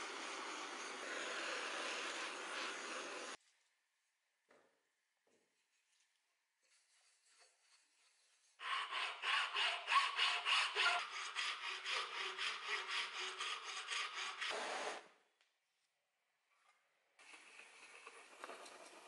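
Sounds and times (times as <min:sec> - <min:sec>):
file rasping on wood: 0:08.6 - 0:14.6.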